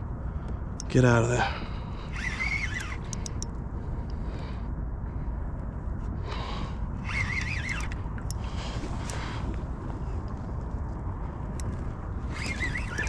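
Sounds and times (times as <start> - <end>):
wind rumble on microphone: 0.0 - 13.0
faint clicks: 2.1 - 4.2.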